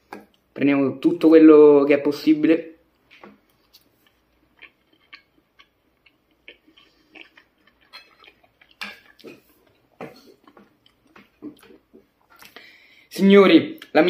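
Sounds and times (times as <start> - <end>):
person chewing: 3.0 - 12.8.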